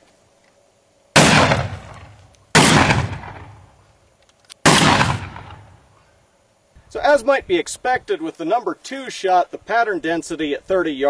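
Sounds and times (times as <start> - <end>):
shotgun shots: 1.2 - 3.7, 4.6 - 5.8.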